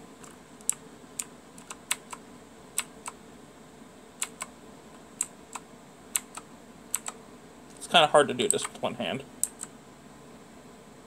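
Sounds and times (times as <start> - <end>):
mechanical keyboard clicks: 1.6 - 2.2, 4.2 - 4.5, 6.2 - 7.2.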